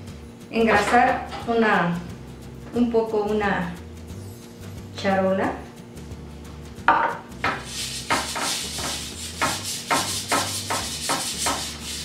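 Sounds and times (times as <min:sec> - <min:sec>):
hand wiping oil on metal sheet: 0:07.5 - 0:12.0.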